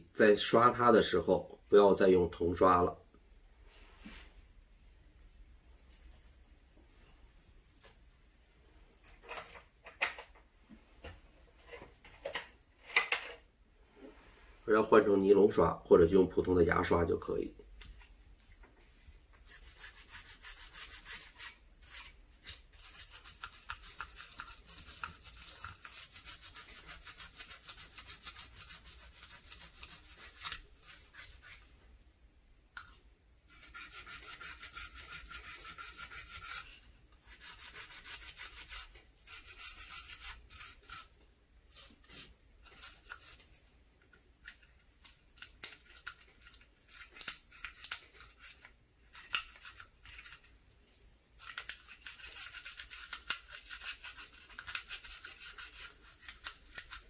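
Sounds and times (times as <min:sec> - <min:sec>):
brush scrubbing plastic: 0:19.3 - 0:31.8, 0:33.5 - 0:43.6, 0:51.3 - 0:57.0.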